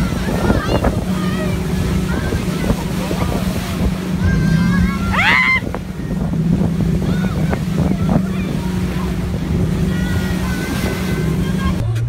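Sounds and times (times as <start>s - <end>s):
wind buffeting microphone: 0.0s - 11.8s
boat motor humming: 0.0s - 12.0s
water rushing past hull: 0.0s - 12.0s
person yelling: 4.2s - 5.8s.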